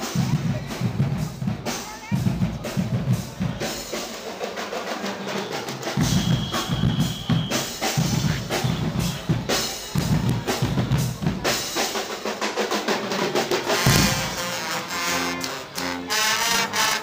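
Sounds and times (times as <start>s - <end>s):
bass drums beating: 0.0s - 3.7s, 6.0s - 11.8s, 13.5s - 14.6s
snare drums: 0.0s - 17.0s.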